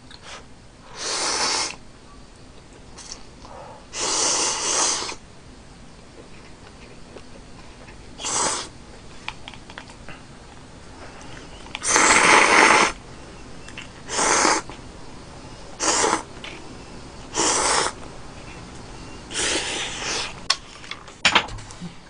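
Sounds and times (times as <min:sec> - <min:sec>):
person slurping noodles: 0:01.0 - 0:01.8, 0:04.0 - 0:05.2, 0:08.2 - 0:08.7, 0:11.8 - 0:13.0, 0:14.1 - 0:14.6, 0:15.8 - 0:16.3, 0:17.3 - 0:18.0, 0:19.3 - 0:20.4.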